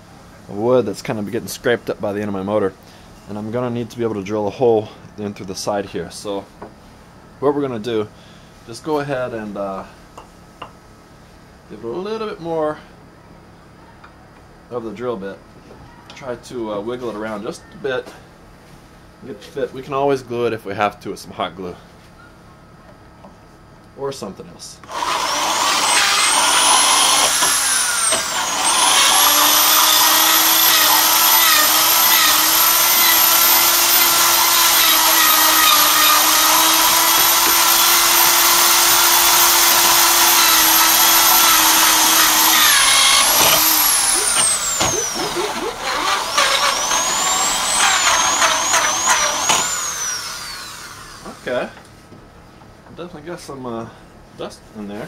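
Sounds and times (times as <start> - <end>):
electric drill whining: 24.8 - 51.5.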